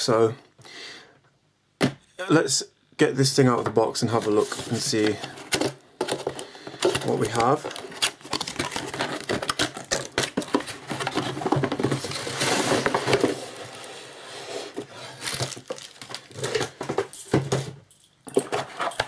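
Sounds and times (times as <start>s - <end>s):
cardboard packaging rustling: 4.1s - 17.8s
cardboard rubbing: 7.1s - 16.8s.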